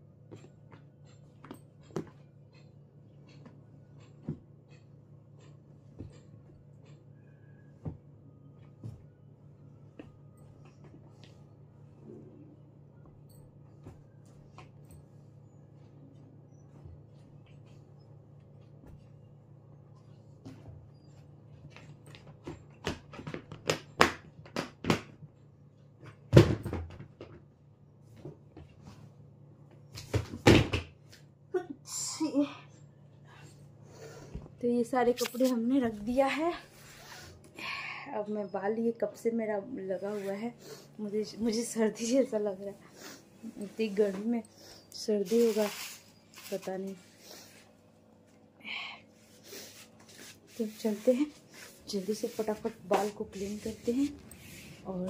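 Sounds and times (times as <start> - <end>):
steady low hum: 0.0 - 26.3, 27.1 - 55.0
clothes rustling: 35.0 - 36.7, 45.1 - 47.8, 49.3 - 55.0.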